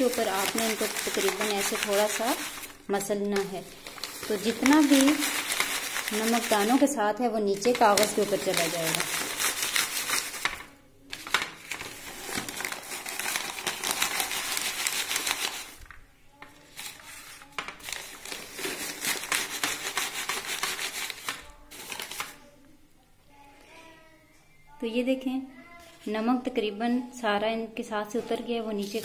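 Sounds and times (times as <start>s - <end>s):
dry corn kernels rustling: 0.0s - 6.8s
paper crinkling: 0.0s - 22.4s, 28.8s - 29.0s.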